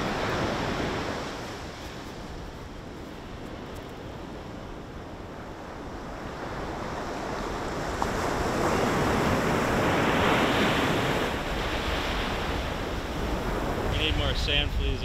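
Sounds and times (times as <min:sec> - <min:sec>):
ocean surf washing onto beach: 0:00.0 - 0:15.0.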